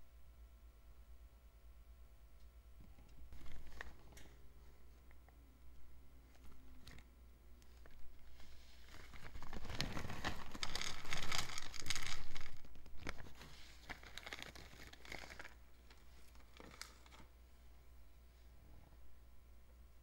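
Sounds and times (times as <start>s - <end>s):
plastic bag crinkling: 3.3s - 4.2s, 7.6s - 17.3s.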